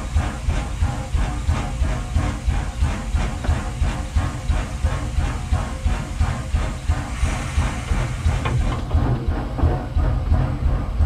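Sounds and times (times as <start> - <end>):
steam locomotive chuffing: 0.0 - 11.0
steam hiss: 6.1 - 8.8.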